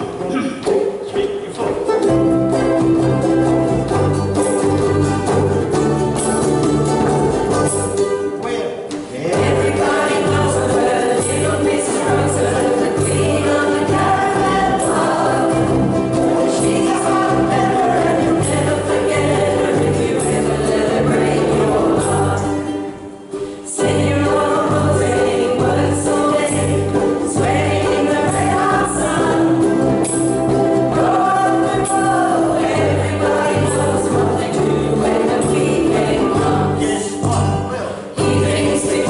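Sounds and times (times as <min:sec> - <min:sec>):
people singing: 0:00.0 - 0:08.2, 0:09.1 - 0:39.0
ukulele strumming: 0:00.0 - 0:39.0
pulsing bass line: 0:09.4 - 0:22.6, 0:23.9 - 0:39.0.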